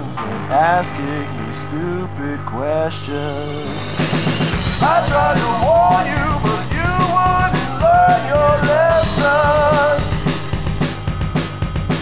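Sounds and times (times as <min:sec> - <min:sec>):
rock song: 0:00.0 - 0:12.0
drum kit: 0:03.3 - 0:12.0.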